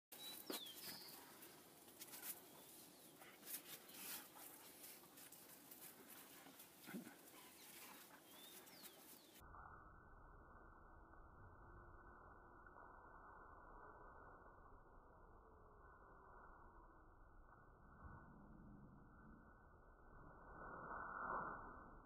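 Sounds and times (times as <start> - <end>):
dogs scuffling on dirt: 0.2 - 9.4
low dog growl: 6.8 - 9.0.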